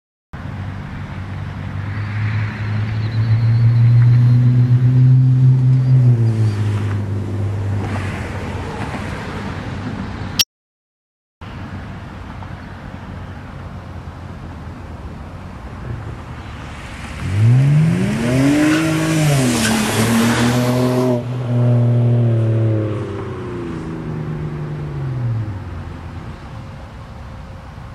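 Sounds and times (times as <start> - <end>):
car engine accelerating past: 1.7 - 9.2, 16.6 - 26.0.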